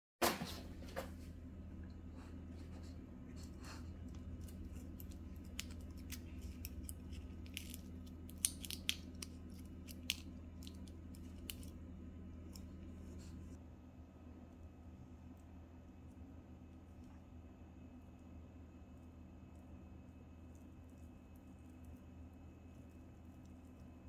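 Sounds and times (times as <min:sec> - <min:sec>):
low hum: 0:00.3 - 0:24.0
foil wrapper crinkling: 0:04.2 - 0:11.8.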